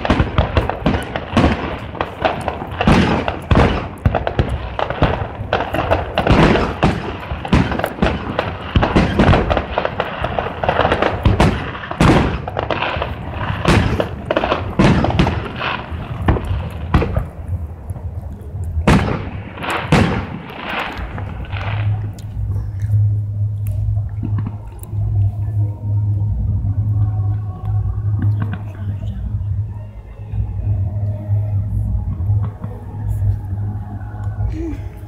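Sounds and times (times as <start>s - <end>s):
fireworks bangs and booms: 0.0s - 23.1s.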